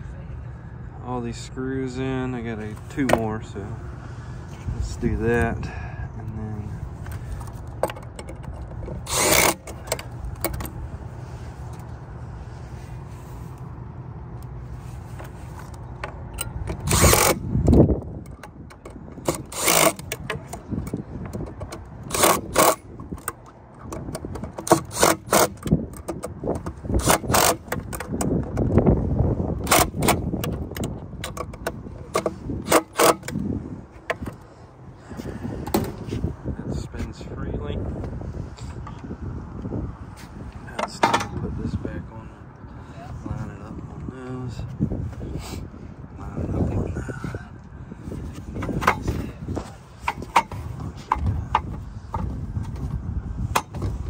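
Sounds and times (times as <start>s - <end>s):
low steady rumble: 0.0s - 54.0s
screwdriver clicks and metal clanks: 7.7s - 10.7s, 15.7s - 28.7s, 29.6s - 33.4s, 48.6s - 49.2s.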